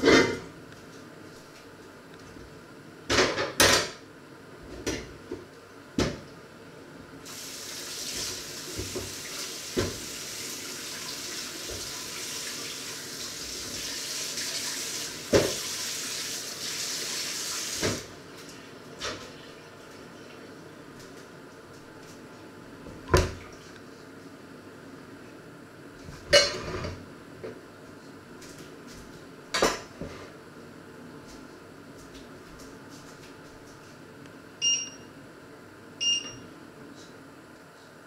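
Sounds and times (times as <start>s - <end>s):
kitchen tap running: 7.3s - 18.1s
pots and dishes clattering: 26.3s - 27.0s.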